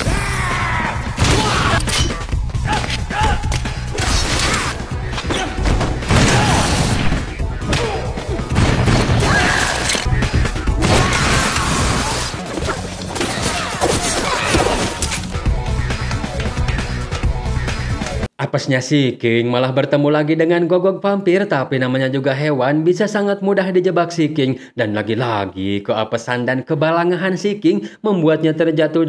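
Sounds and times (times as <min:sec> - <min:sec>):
action film background score: 0:00.0 - 0:18.3
thuds and smashing impacts: 0:01.2 - 0:09.9.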